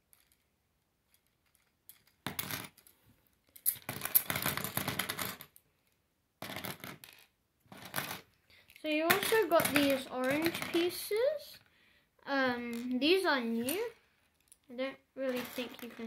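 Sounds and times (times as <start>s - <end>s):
plastic wheels clacking and rattling: 3.6s - 5.6s, 6.4s - 11.3s, 15.3s - 16.0s.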